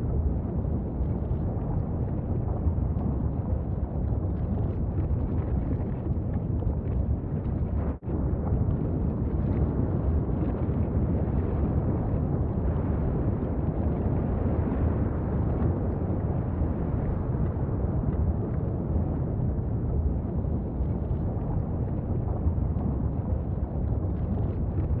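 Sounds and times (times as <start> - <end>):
lava vent rumbling roar: 0.0 - 25.0.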